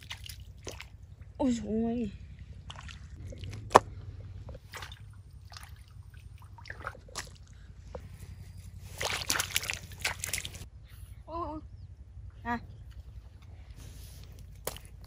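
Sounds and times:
water splashing: 0.0 - 7.8, 8.8 - 10.7
water sloshing and dripping: 0.0 - 10.7, 14.2 - 15.0.

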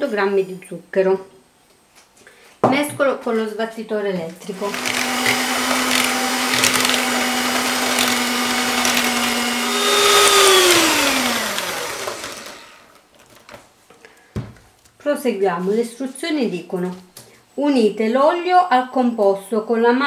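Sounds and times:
electric hand mixer motor: 4.5 - 13.0.

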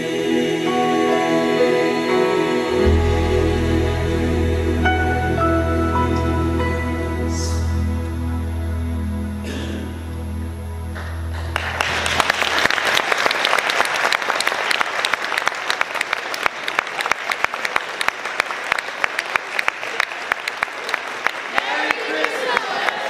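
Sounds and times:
song's final held chord: 0.6 - 12.4
crowd applauding: 11.0 - 23.0.

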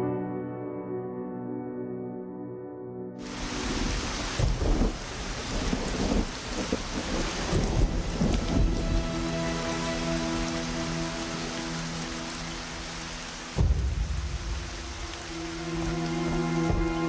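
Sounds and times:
low music tones: 0.0 - 17.0
heavy rain: 3.2 - 17.0
rolling thunder: 3.5 - 9.3, 13.5 - 15.3.

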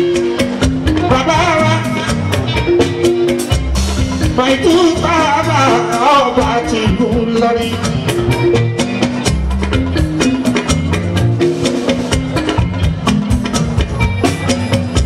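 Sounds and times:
band with guitars and drums: 0.0 - 15.0
man singing: 1.0 - 2.6, 4.2 - 8.2.

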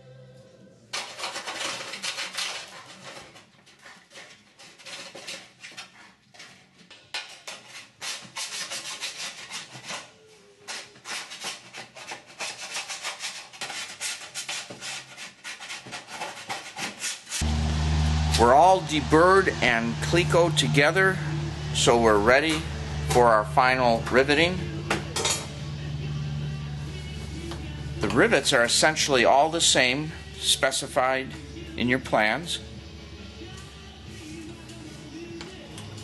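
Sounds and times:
deburring tool scraping metal: 1.0 - 6.6.

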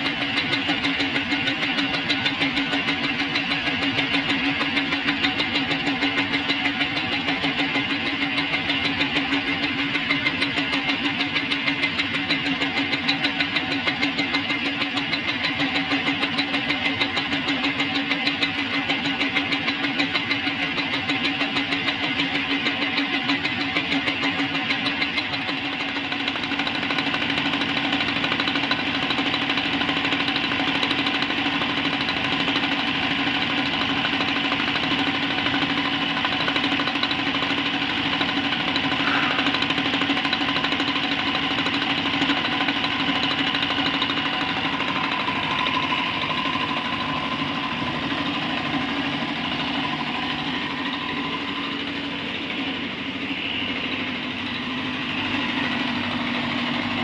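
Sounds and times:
cutter grinding metal: 34.6 - 53.8
milling machine hum: 38.6 - 42.1.

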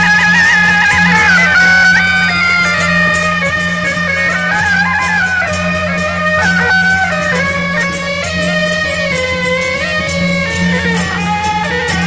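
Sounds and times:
metallic percussion strokes: 0.0 - 12.0
shrill double-reed horn melody: 0.0 - 12.0.

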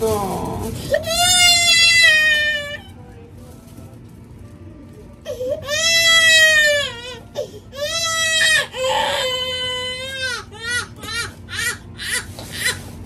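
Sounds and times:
baby crying: 5.3 - 12.8.

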